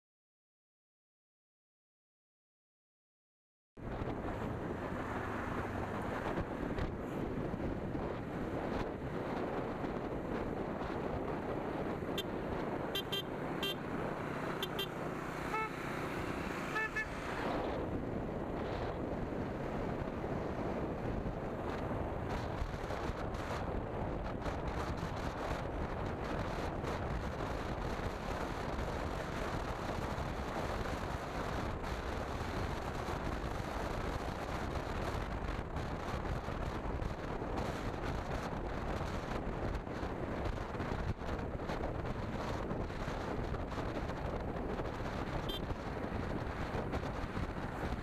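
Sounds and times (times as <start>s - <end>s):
motorcycle running: 3.8s - 48.0s
wind rush: 3.8s - 48.0s
motorcycle engine: 10.2s - 18.2s
motorcycle horn toots: 12.9s - 13.8s, 14.6s - 15.8s, 16.7s - 17.2s, 45.4s - 45.7s.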